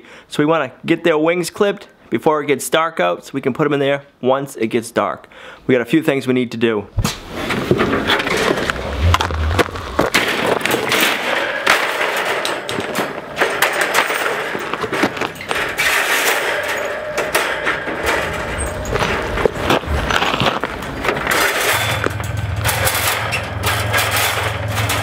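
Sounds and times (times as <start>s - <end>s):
metal wire crate clanking: 7.2s - 25.0s.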